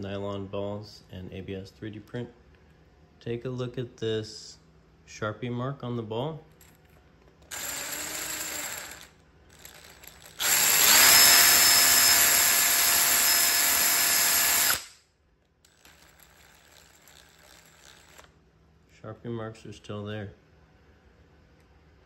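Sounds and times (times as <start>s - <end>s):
cordless drill motor whine: 7.5s - 14.9s.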